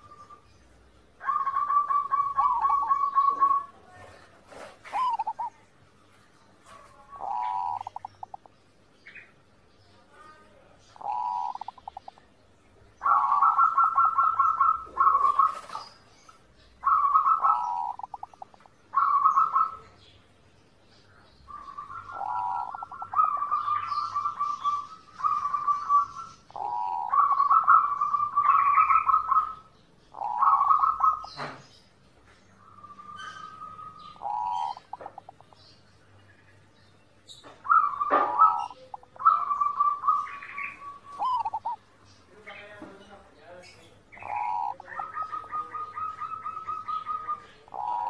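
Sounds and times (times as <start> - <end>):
dove cooing: 0.0 - 0.5, 1.1 - 5.7, 6.6 - 8.5, 10.9 - 12.2, 12.9 - 20.1, 21.5 - 31.7, 32.7 - 35.7, 37.3 - 41.9, 44.1 - 48.0.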